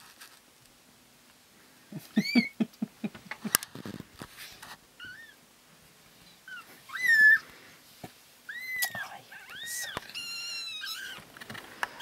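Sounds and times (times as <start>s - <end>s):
kittens mewing: 2.0s - 2.8s, 6.5s - 7.5s, 8.5s - 11.2s.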